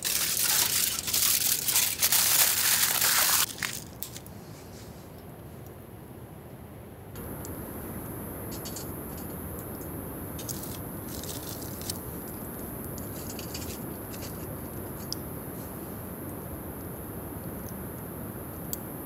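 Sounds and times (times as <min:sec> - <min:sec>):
fire hissing: 0:00.0 - 0:03.5, 0:07.2 - 0:19.0
wood fire crackling: 0:00.0 - 0:04.2, 0:07.2 - 0:18.9.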